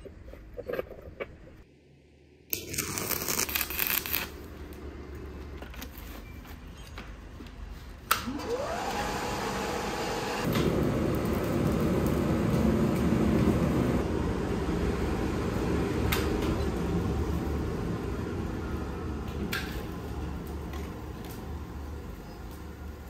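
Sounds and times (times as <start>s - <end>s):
blower motor whine: 8.2s - 22.7s
air rushing through burning charcoal: 8.5s - 23.0s.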